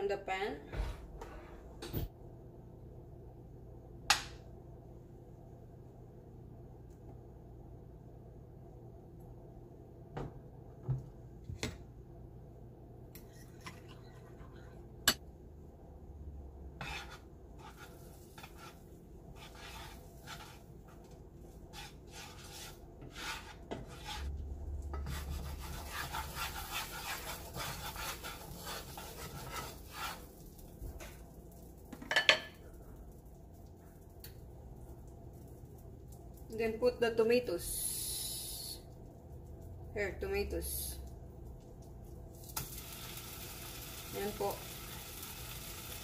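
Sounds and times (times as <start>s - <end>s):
spatula scraping frying pan: 16.8s - 30.6s.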